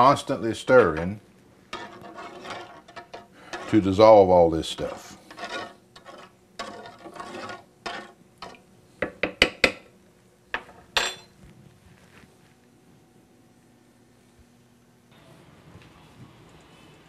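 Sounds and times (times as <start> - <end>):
spoon stirring in saucepan: 1.7 - 4.0, 4.6 - 9.2.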